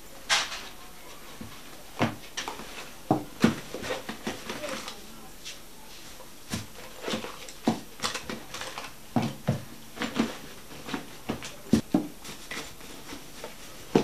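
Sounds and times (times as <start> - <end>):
rummaging in a bag: 6.5 - 14.0.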